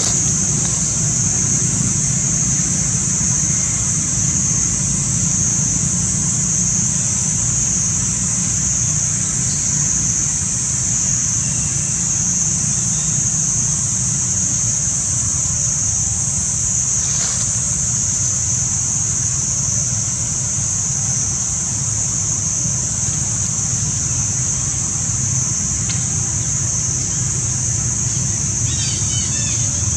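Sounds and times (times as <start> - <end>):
low steady rumble: 0.0 - 12.5
cicadas buzzing: 0.0 - 29.9.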